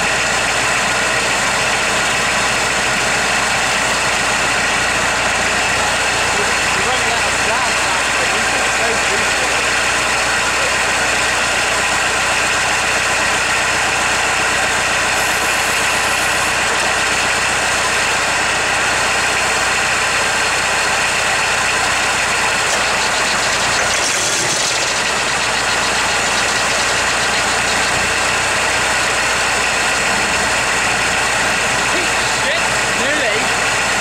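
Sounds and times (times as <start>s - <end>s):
diesel engine idling: 0.0s - 34.0s.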